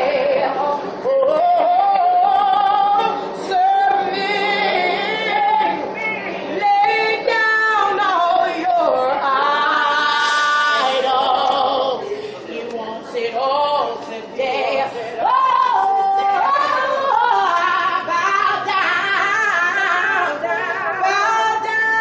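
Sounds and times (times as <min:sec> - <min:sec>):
woman singing unaccompanied: 0:00.0 - 0:22.0.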